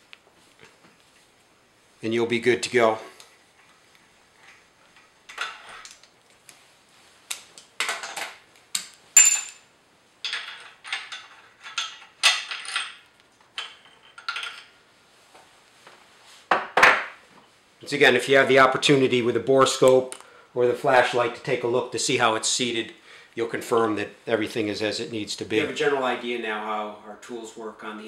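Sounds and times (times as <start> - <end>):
metal tools clinking and rattling: 9.2 - 9.6, 10.2 - 14.8.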